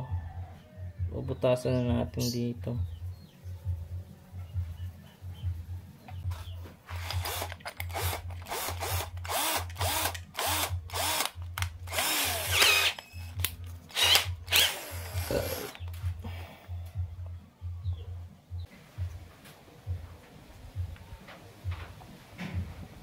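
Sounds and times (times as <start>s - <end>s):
cordless drill motor bursts: 6.9s - 15.8s.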